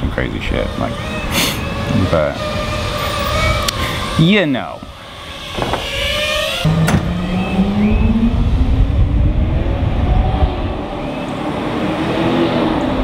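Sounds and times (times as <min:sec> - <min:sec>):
low wind rumble: 0:00.0 - 0:13.0
drone motors whining: 0:00.4 - 0:09.3.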